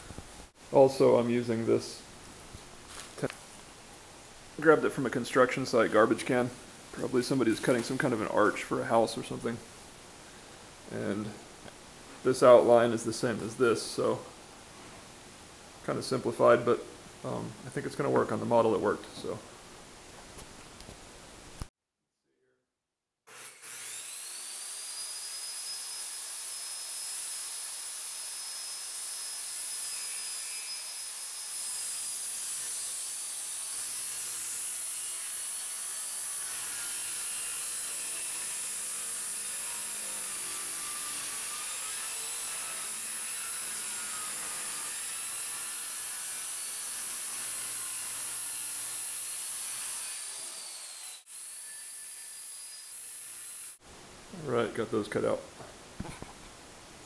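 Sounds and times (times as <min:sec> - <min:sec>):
circular saw cutting wood: 0:23.3 - 0:53.8.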